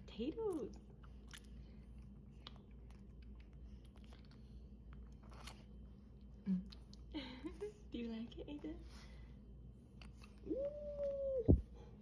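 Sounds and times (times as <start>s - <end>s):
baby mouth sucking and smacking: 0.8s - 5.8s.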